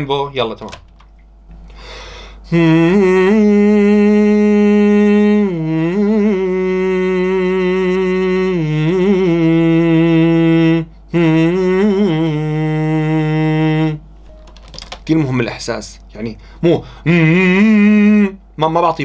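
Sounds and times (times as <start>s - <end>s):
man singing wordless notes: 2.5s - 14.1s, 16.6s - 18.8s.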